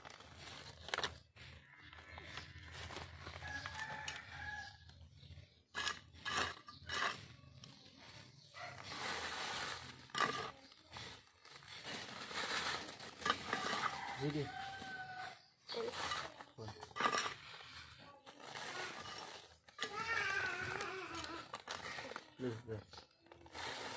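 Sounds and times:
plastic bag crinkling: 0:00.0 - 0:04.4, 0:08.6 - 0:15.2, 0:15.8 - 0:23.9
soil crumbling and scraping: 0:00.0 - 0:23.9.

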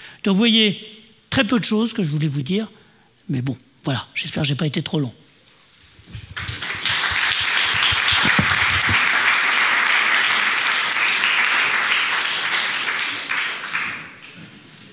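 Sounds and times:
audience applauding: 0:06.2 - 0:14.7.

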